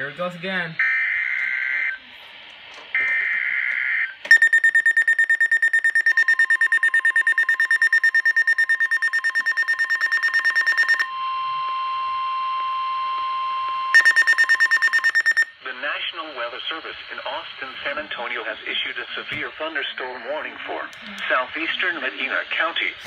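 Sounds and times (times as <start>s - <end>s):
long steady warning tone: 2.9s - 15.6s
rapid high-pitched alarm beeping: 3.0s - 15.6s.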